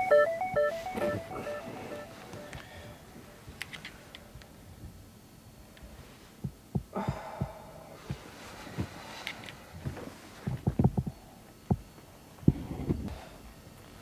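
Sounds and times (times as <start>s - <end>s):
breathy exhale: 1.3s - 3.1s, 6.9s - 9.5s.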